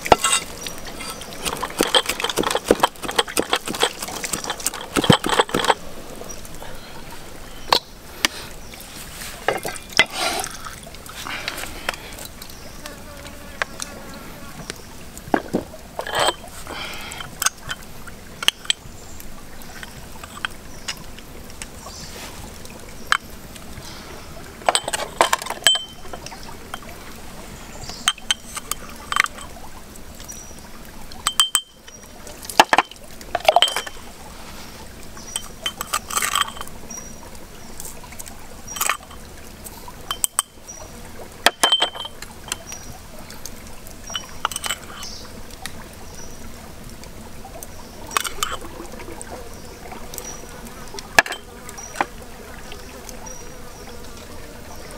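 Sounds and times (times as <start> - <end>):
plastic spoon clinking ceramic cup: 24.7 - 26.2, 41.5 - 42.6, 51.2 - 51.5.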